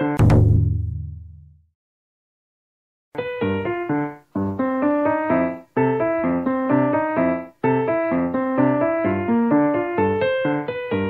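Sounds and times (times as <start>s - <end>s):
keyboard melody: 3.2s - 11.0s.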